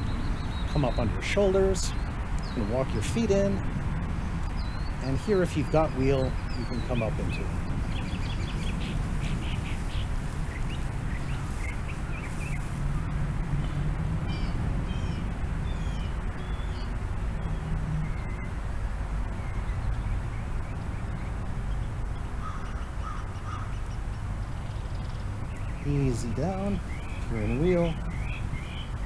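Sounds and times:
birds chirping: 0:00.0 - 0:29.0.

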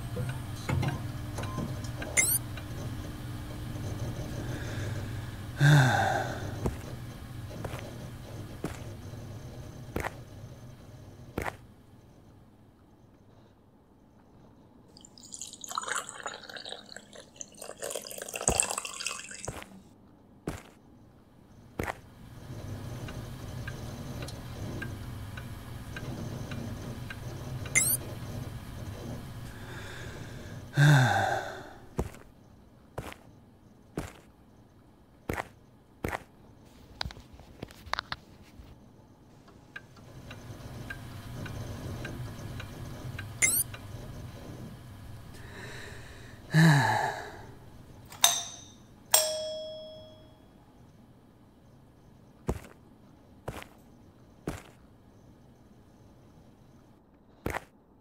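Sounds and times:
low steady hum: 0:00.0 - 0:58.0
rising chirp: 0:27.8 - 0:28.0, 0:43.4 - 0:43.7
sharp ringing strikes: 0:48.2 - 0:50.5.

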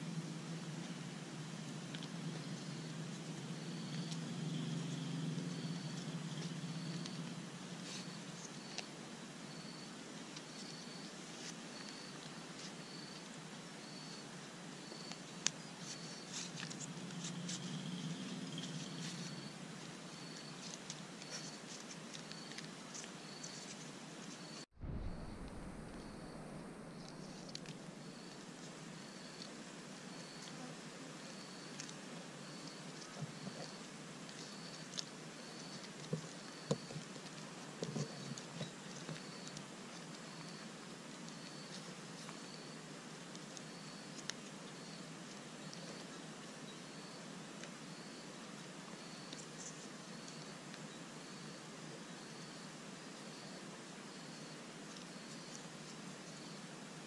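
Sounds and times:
bark cord rustling and crackling: 0:15.0 - 0:24.6.

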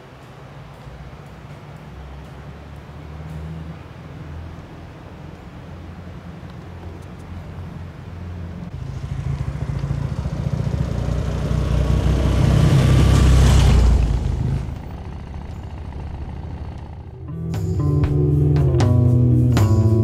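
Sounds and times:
motorcycle engine passing by: 0:06.7 - 0:19.5.

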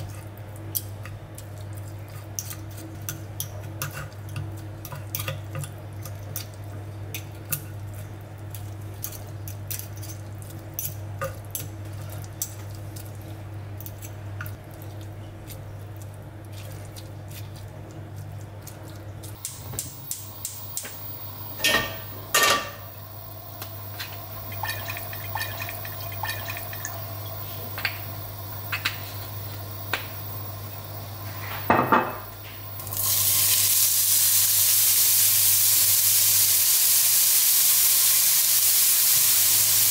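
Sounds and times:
food sizzling in hot oil: 0:19.4 - 0:39.9.

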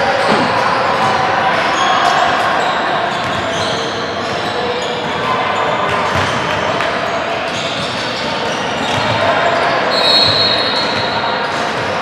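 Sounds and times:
indistinct voices echoing: 0:00.0 - 0:04.7.

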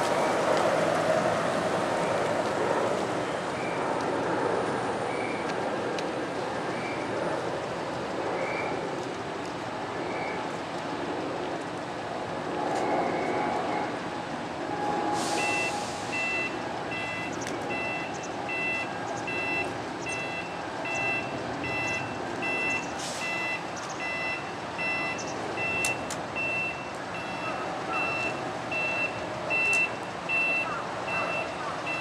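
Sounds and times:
truck reversing alarm beeping: 0:14.7 - 0:32.0
short air hisses: 0:15.1 - 0:16.2.

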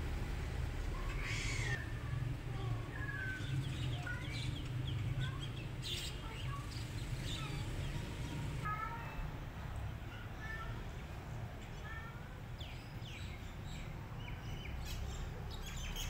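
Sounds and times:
birds chirping: 0:01.0 - 0:01.9, 0:02.9 - 0:08.9.

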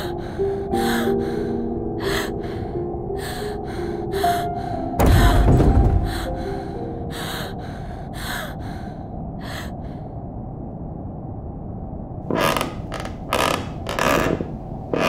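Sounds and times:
panicked gasping breaths: 0:00.0 - 0:10.0
door crashing in: 0:05.0 - 0:06.1.

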